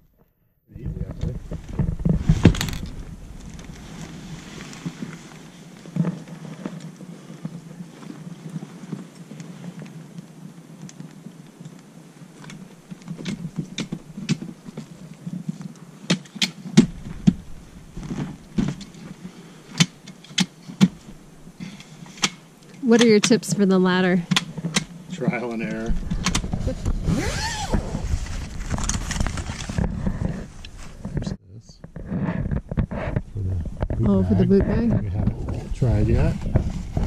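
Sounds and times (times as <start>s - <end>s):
tent fabric rushing and rustling: 1.6s - 9.8s, 16.9s - 19.7s, 25.3s - 31.2s, 35.4s - 37.0s.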